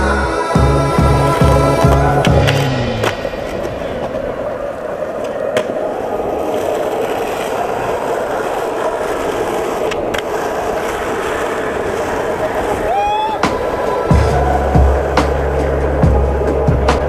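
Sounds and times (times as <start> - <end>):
skateboard wheels rolling on asphalt: 0.0 - 17.0.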